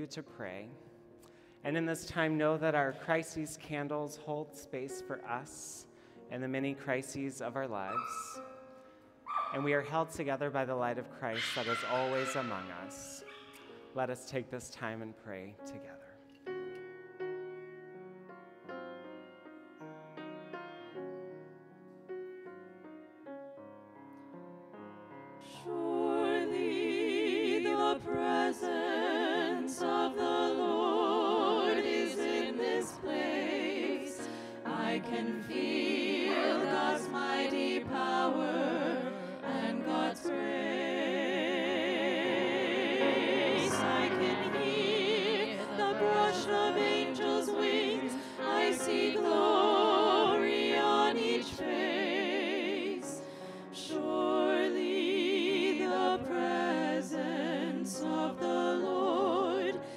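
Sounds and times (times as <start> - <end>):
choir singing with vibrato: 7.9 - 9.9, 11.3 - 13.9, 25.4 - 59.9.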